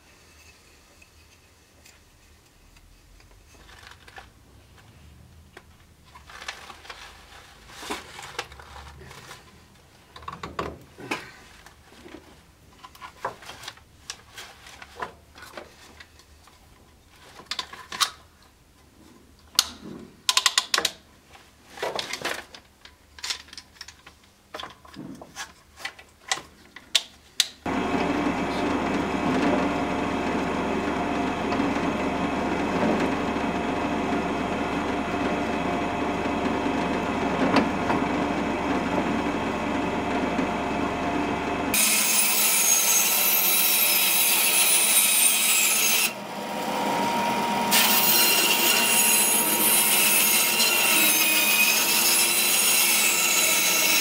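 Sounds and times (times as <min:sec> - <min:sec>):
bandsaw cutting: 0:27.7 - 0:54.0
drill press drilling wood: 0:27.7 - 0:54.0.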